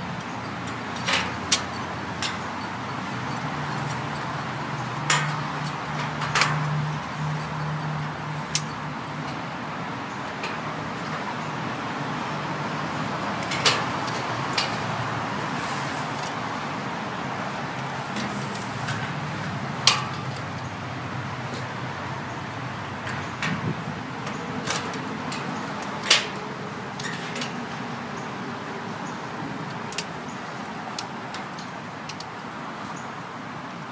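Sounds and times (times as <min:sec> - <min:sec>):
background traffic rumble: 0:00.0 - 0:33.9
metal bracket clicks and knocks: 0:00.2 - 0:11.3, 0:13.2 - 0:15.5, 0:17.8 - 0:28.2, 0:31.0 - 0:32.4.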